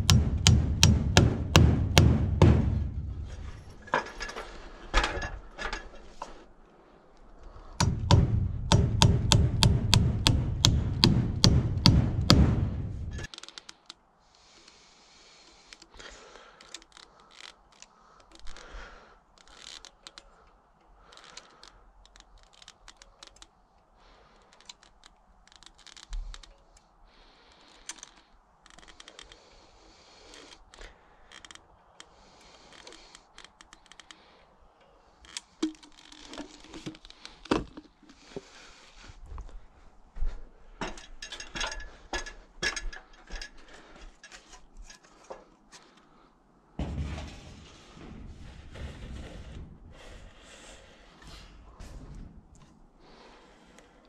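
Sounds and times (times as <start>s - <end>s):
caulking gun clicks and scrapes: 13.1s - 39.0s, 40.8s - 46.2s.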